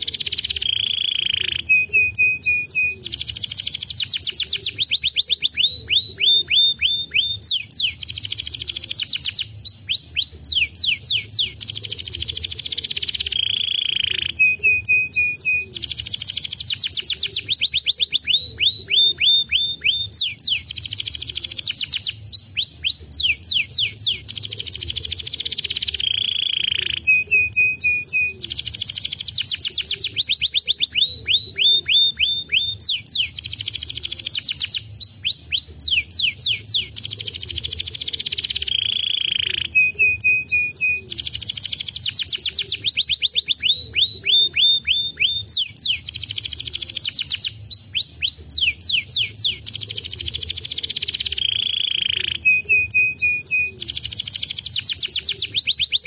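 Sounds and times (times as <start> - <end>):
canary held whistle: 0.0 - 56.0
canary singing trills: 0.0 - 56.0.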